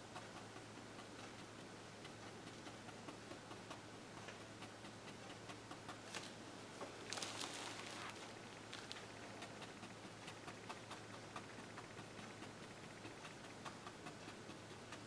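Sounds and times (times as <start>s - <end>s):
brush scuffing: 6.1s - 9.0s.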